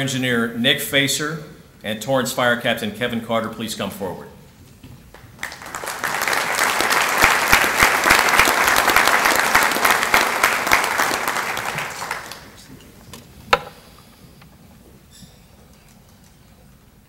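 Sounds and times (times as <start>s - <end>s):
audience applauding: 5.1s - 12.7s.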